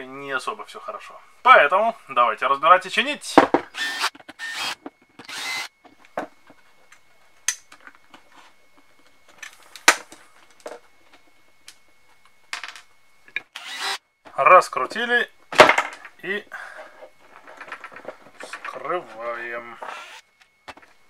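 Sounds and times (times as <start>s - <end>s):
cordless drill running: 3.7s - 5.7s, 13.5s - 14.0s, 19.8s - 20.2s.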